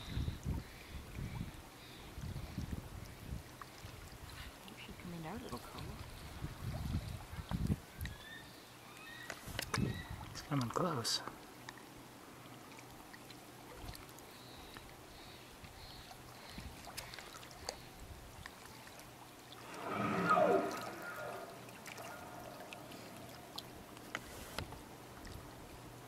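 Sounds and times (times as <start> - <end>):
faint water sounds: 0.0 - 26.0
whale blowing loud exhale: 19.6 - 24.6.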